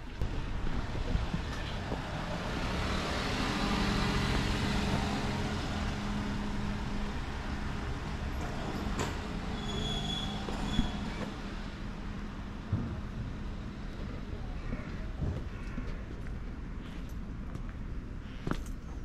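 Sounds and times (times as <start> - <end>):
road noise: 0.0 - 19.0
short high squeal: 9.5 - 11.3.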